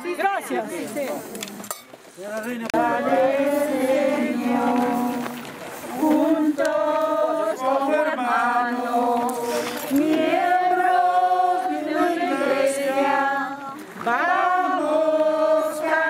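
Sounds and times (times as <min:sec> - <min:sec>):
group singing a hymn: 0:02.6 - 0:16.0.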